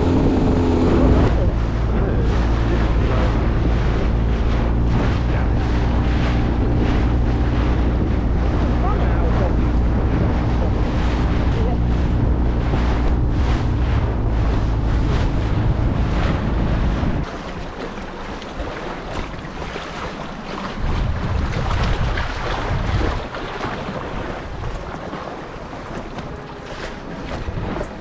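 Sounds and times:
outboard motor running: 0.0s - 28.0s
water rushing past hull: 0.0s - 28.0s
wind buffeting microphone: 0.0s - 28.0s.

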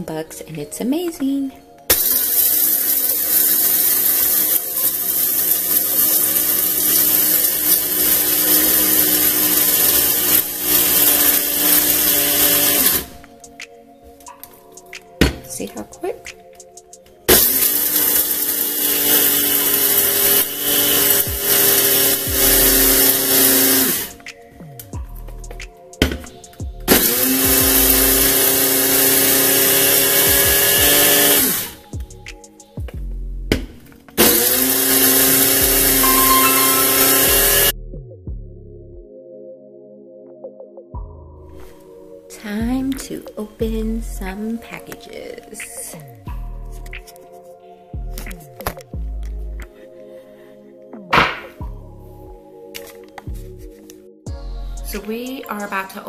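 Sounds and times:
coffee grinder motor whine: 1.9s - 13.1s, 17.3s - 24.2s, 26.9s - 31.8s, 34.2s - 37.7s.

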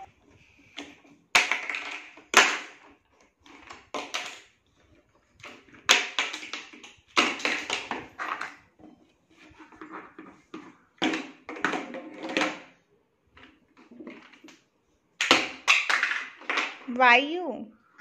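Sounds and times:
plastic toy blocks clacking: 0.8s - 8.7s, 9.4s - 12.8s, 15.2s - 16.9s.

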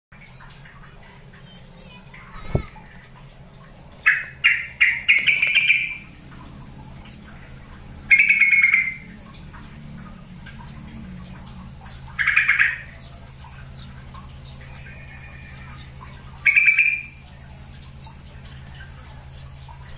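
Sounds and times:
bird chirping and warbling: 1.1s - 3.1s, 3.7s - 9.2s, 11.8s - 17.3s.

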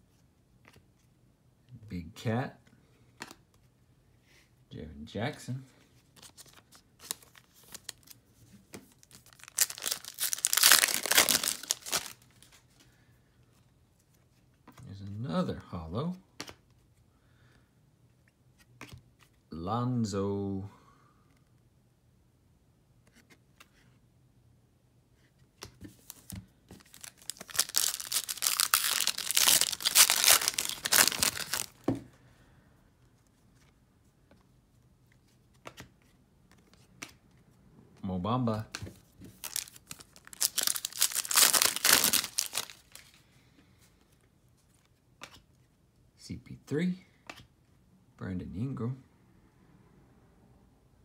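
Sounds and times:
foil wrapper tearing and crinkling: 9.1s - 12.2s, 26.8s - 31.8s, 39.4s - 43.0s.

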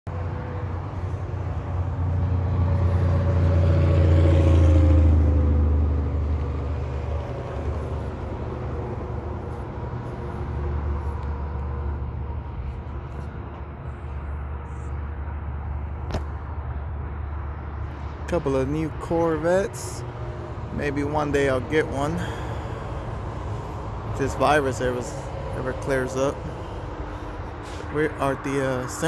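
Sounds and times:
vehicle driving past: 0.1s - 18.3s
steady low rumble: 4.6s - 18.3s.

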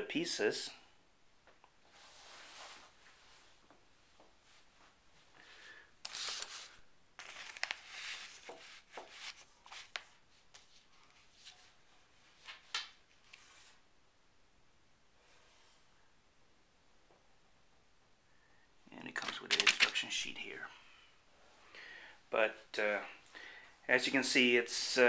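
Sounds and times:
plastic bags crinkling: 6.1s - 9.9s, 19.2s - 20.0s.

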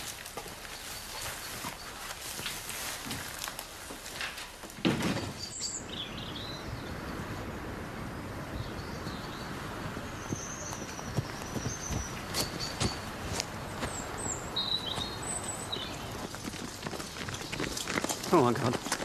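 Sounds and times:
shuffling: 0.0s - 4.8s, 10.7s - 19.0s
outdoor ambience: 0.0s - 19.0s
bird chirps: 5.4s - 7.0s, 8.6s - 16.5s.

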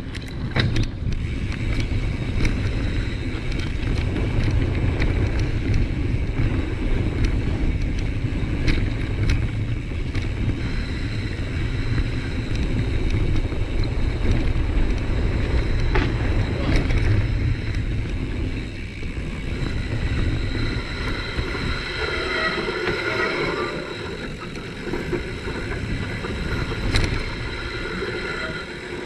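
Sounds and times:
bike clicks and rattles: 0.0s - 29.0s
bike tyres rolling on dirt: 0.0s - 29.0s
wind buffeting microphone: 0.0s - 29.0s.

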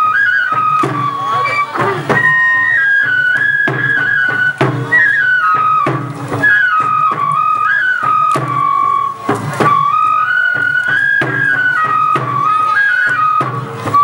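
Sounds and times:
flute melody: 0.0s - 14.0s.

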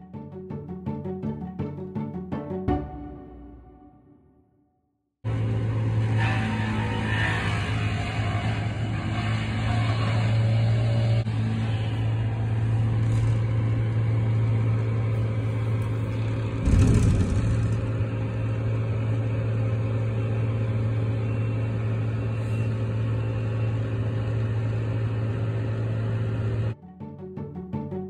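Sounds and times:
low thud: 16.6s - 18.1s.

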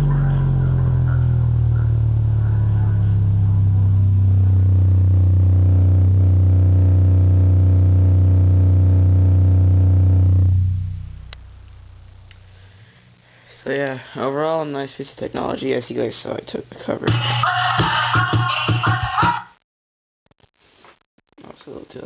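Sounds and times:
song through a subwoofer: 0.0s - 12.8s, 17.0s - 19.5s
deep bass note: 0.0s - 12.9s.

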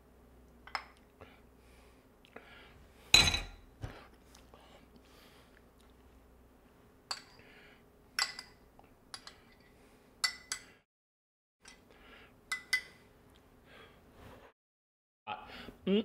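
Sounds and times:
metal spoon clinking ceramic bowl: 8.2s - 10.7s, 12.5s - 13.0s.

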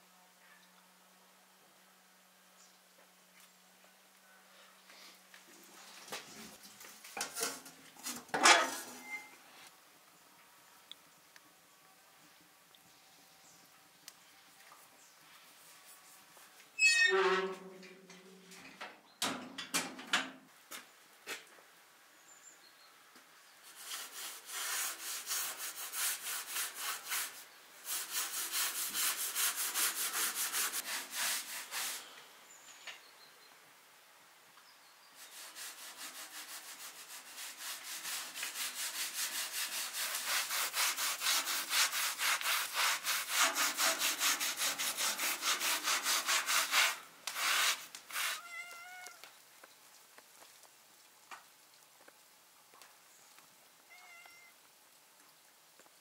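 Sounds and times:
rhythmic kitchen scraping: 35.5s - 48.3s.

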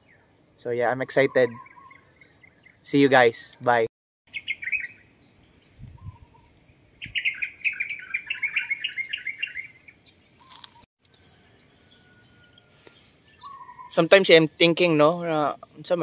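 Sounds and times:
songbird chirping: 0.0s - 16.0s.

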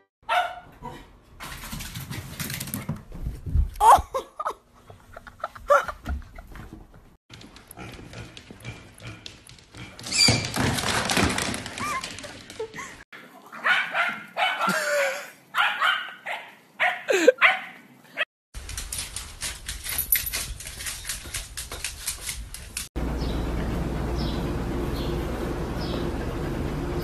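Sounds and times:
dog barking: 0.2s - 1.0s, 13.6s - 14.8s, 15.5s - 17.8s.

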